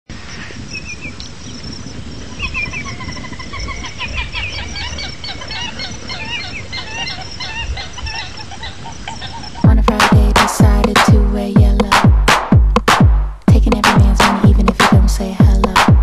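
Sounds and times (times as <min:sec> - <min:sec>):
many birds chirping and clucking: 0:02.3 - 0:09.7.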